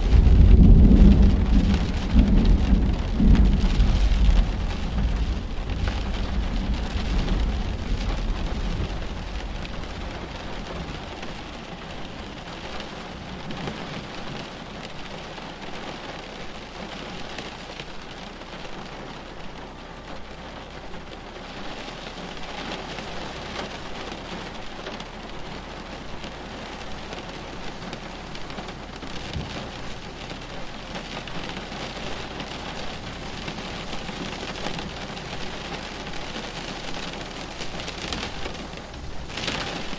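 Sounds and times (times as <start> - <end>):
steady rain falling: 0.0 - 39.9
thunder rumbling: 0.0 - 39.9.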